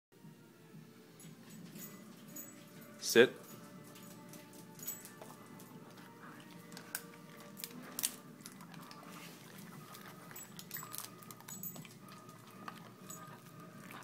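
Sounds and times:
collar tag jingling: 1.2s - 6.8s, 9.5s - 14.0s
dog chewing treat: 1.6s - 14.0s.

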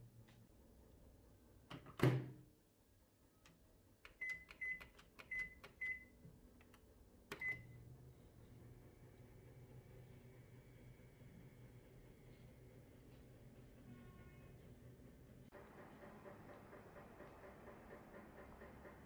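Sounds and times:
microwave oven humming: 0.0s - 19.0s
microwave door shutting: 1.7s - 2.4s
microwave beeps: 4.1s - 6.2s, 7.3s - 7.8s.

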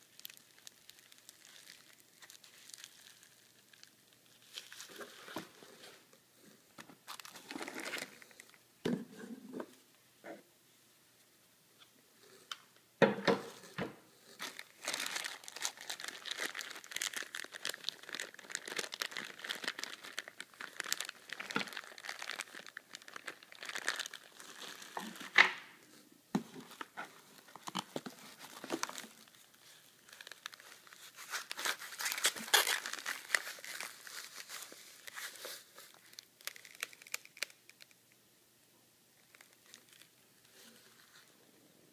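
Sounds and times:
plastic packaging crinkling: 0.0s - 6.0s, 7.0s - 8.6s, 14.4s - 25.4s, 26.6s - 38.0s, 39.3s - 41.3s.

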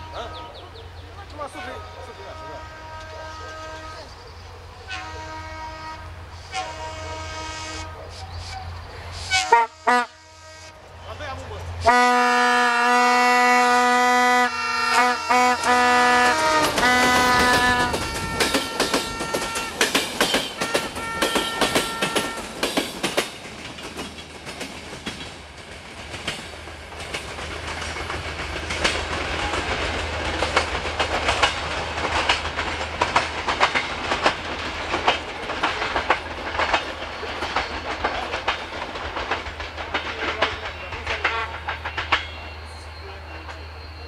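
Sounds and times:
locomotive engine humming: 0.0s - 44.0s
train wheels clattering over rail joints: 14.9s - 42.6s.

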